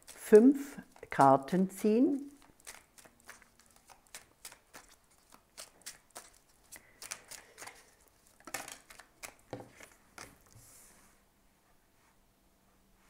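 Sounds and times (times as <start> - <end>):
cards being shuffled: 2.1 - 10.6.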